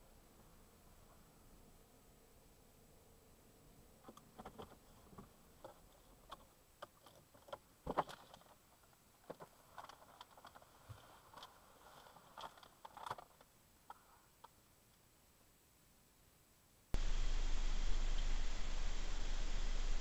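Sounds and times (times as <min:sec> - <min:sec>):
faint clicks and knocks: 0:04.0 - 0:15.0
clothing rustling: 0:07.0 - 0:14.0.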